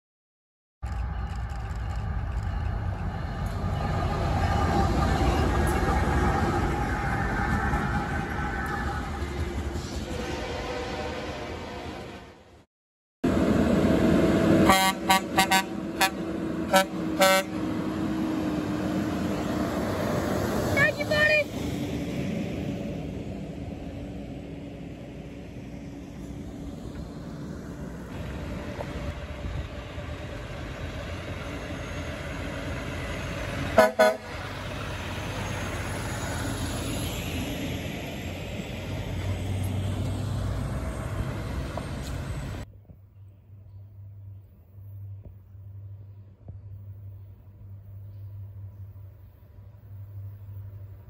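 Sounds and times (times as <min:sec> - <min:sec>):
tyre and road noise: 0:00.8 - 0:12.6, 0:13.2 - 0:51.0
diesel engine running: 0:13.2 - 0:42.6
truck horn blasts: 0:14.6 - 0:17.8, 0:33.7 - 0:34.4.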